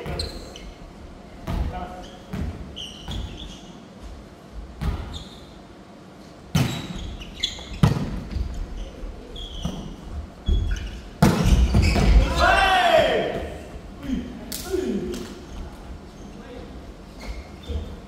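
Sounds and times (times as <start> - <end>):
shoes squeaking on wooden floor: 1.9 - 4.0, 6.6 - 12.4.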